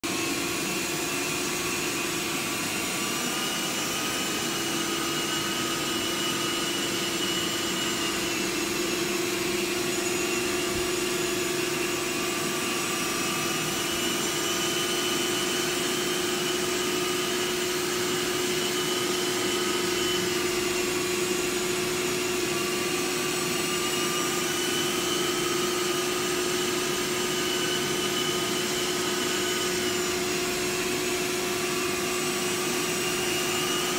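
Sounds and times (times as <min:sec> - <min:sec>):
carpet extractor suction rush: 0:00.1 - 0:33.9
high machine whines: 0:00.1 - 0:33.9.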